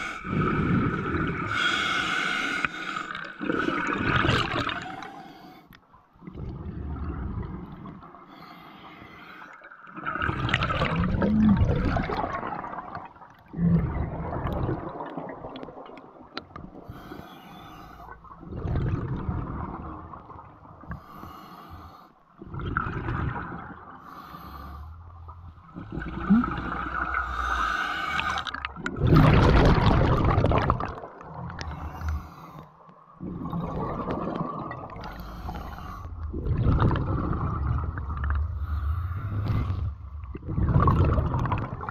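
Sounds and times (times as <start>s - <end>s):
gurgling exhaled bubbles: 0.0s - 1.6s, 3.0s - 5.0s, 6.2s - 8.1s, 9.9s - 17.0s, 18.0s - 21.0s, 22.4s - 24.0s, 25.2s - 32.4s, 33.2s - 41.9s
scuba regulator breathing: 0.0s - 3.3s, 16.8s - 18.2s, 20.9s - 22.2s, 24.0s - 25.4s, 26.0s - 28.7s, 31.6s - 32.8s, 35.0s - 36.4s, 38.5s - 40.2s.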